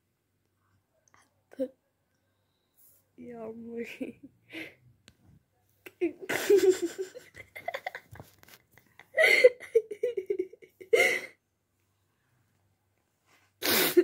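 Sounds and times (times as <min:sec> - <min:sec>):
person laughing: 0:06.2 - 0:11.3.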